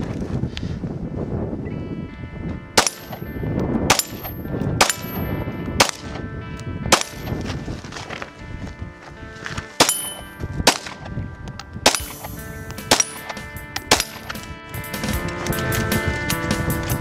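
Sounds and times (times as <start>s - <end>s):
pistol shots: 2.8s - 3.3s, 3.9s - 6.2s, 6.9s - 7.3s, 9.8s - 11.1s, 11.8s - 14.5s
steel plate target ringing: 2.8s - 6.1s, 6.9s - 7.4s, 9.8s - 11.0s, 11.8s - 14.5s.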